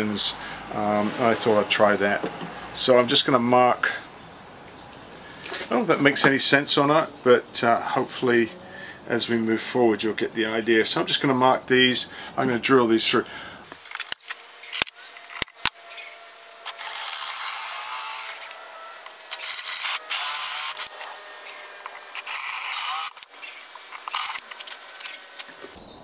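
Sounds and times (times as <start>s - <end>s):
cordless drill boring wood: 15.9s - 25.2s.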